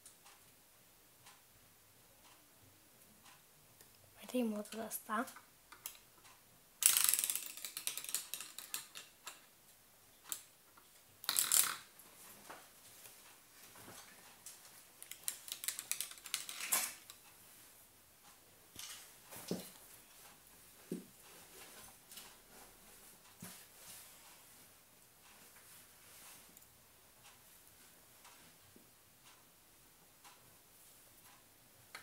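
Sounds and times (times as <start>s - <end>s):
spinning top rattling and clicking: 6.8s - 9.4s, 11.2s - 12.0s, 15.0s - 17.2s.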